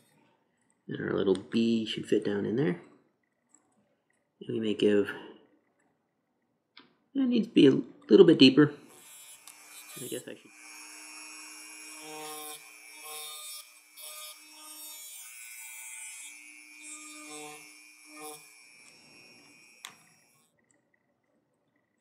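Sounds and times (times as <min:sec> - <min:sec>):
rotary tool grinding aluminum: 0:08.8 - 0:20.5.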